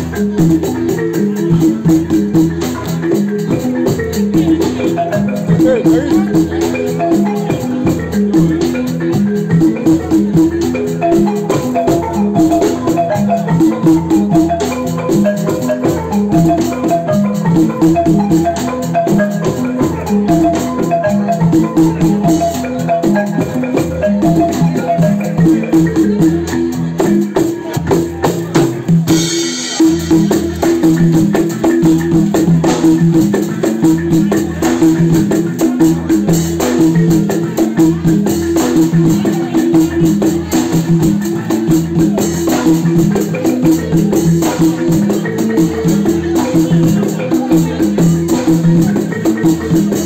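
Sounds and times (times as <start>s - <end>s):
shaker keeping time: 0.0s - 50.0s
instrument repeating quick melody: 0.1s - 27.2s.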